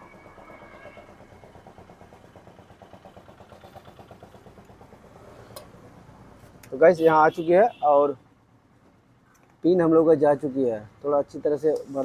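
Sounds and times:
engine idling faintly: 0:00.0 - 0:07.4.

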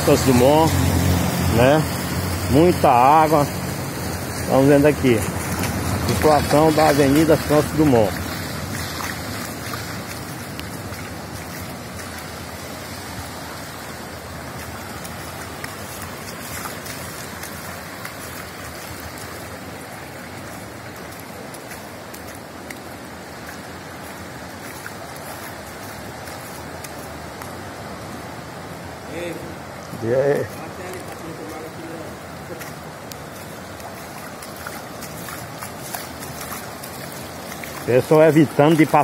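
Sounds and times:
floodwater rushing and splashing: 0:00.0 - 0:39.0.

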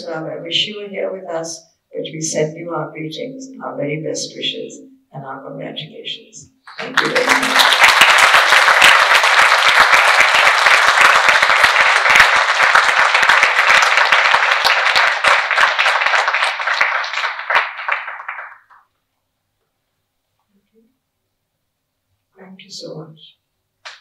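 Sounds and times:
audience applauding: 0:06.7 - 0:18.8.

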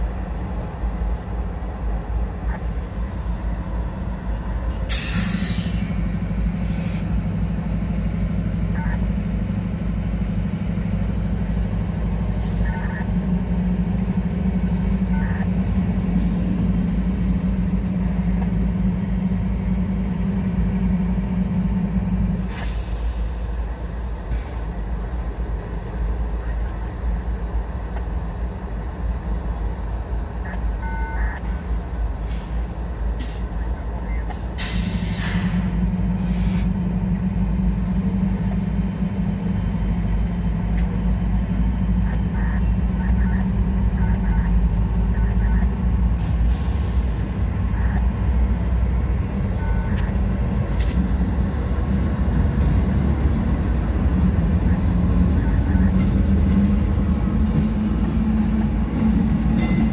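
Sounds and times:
diesel locomotives idling: 0:00.0 - 0:59.9
brake air hiss: 0:04.7 - 0:06.0, 0:06.6 - 0:07.2, 0:22.4 - 0:23.7, 0:34.6 - 0:36.8.

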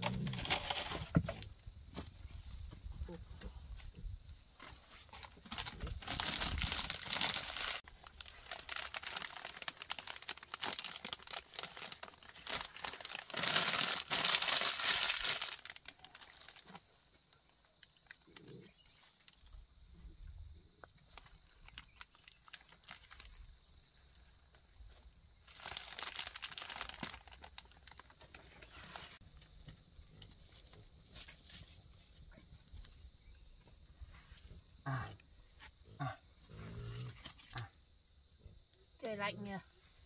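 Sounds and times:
plastic wrapper crinkling: 0:05.1 - 0:16.8, 0:21.1 - 0:23.6, 0:25.4 - 0:29.2.

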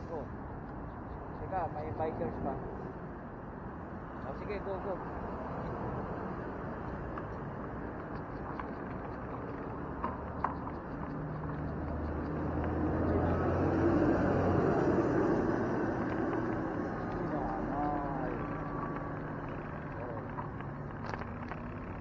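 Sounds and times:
motor vehicle engine hum: 0:00.0 - 0:22.0
road traffic: 0:00.0 - 0:22.0.

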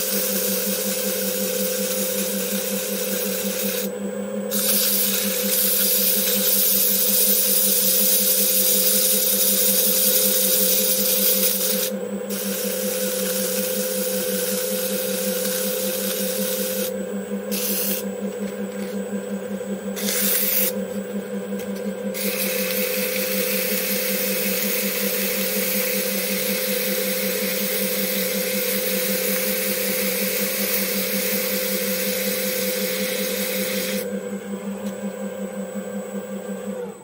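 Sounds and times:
sandpaper rasping hiss: 0:00.0 - 0:03.9, 0:04.5 - 0:16.9, 0:17.5 - 0:18.1, 0:20.0 - 0:20.8, 0:22.2 - 0:34.0
lathe humming: 0:00.0 - 0:37.0.

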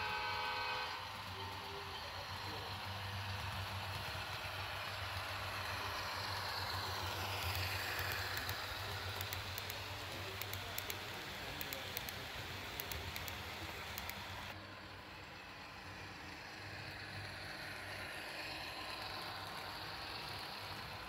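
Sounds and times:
model train engine hum: 0:00.0 - 0:21.0
train passing rush: 0:00.0 - 0:21.0
wheels clicking over rail joints: 0:01.0 - 0:14.6.

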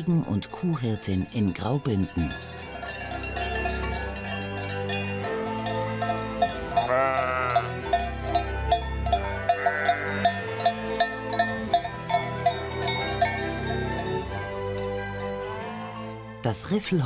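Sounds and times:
plucked string music with beat: 0:02.3 - 0:16.0
sheep bleating: 0:06.7 - 0:07.8, 0:09.4 - 0:10.3, 0:15.4 - 0:16.1.

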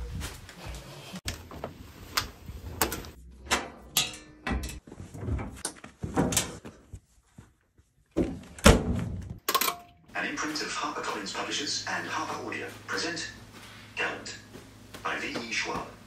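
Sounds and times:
objects knocking and clunking: 0:01.3 - 0:06.8.

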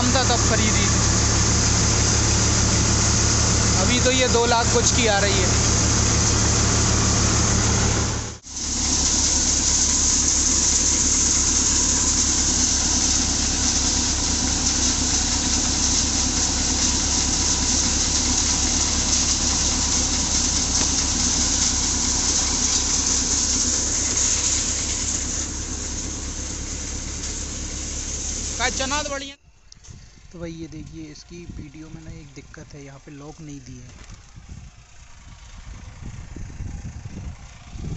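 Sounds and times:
hiss of chaff and grain: 0:00.0 - 0:28.7
thresher running: 0:00.0 - 0:37.9
tractor engine under load: 0:00.0 - 0:37.9.

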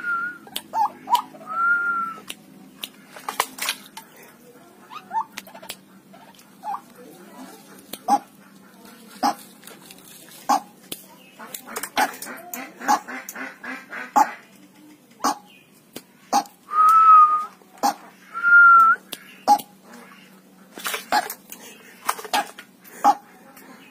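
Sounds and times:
steady held whistles: 0:00.0 - 0:00.4, 0:16.7 - 0:17.5.

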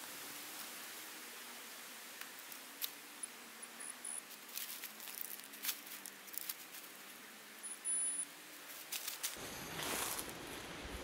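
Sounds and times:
hands digging through soil and leaves: 0:04.3 - 0:07.1, 0:08.6 - 0:11.0
faint high-pitched beeps: 0:07.6 - 0:08.3.

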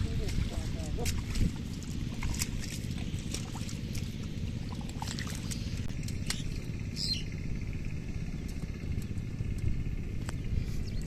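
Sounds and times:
small splashes in mud: 0:00.0 - 0:06.7
steady low rumble: 0:00.0 - 0:11.0.

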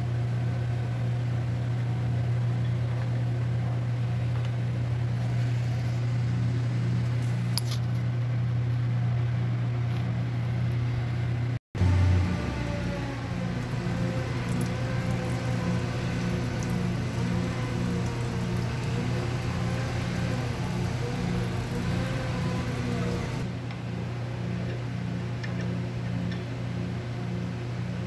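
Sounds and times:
metal lathe motor hum: 0:11.8 - 0:23.6.

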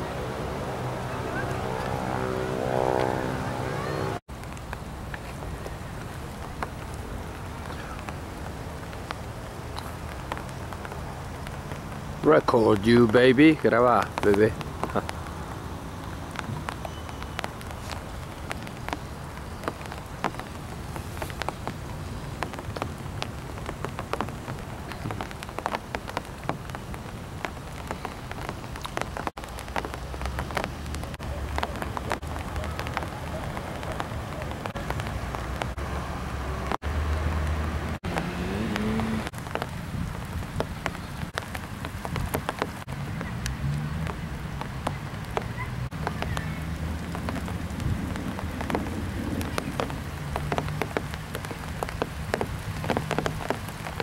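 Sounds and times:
steady rain: 0:00.0 - 0:54.0
raindrops pattering close: 0:04.2 - 0:54.0
low thunder rumble: 0:46.0 - 0:51.0.

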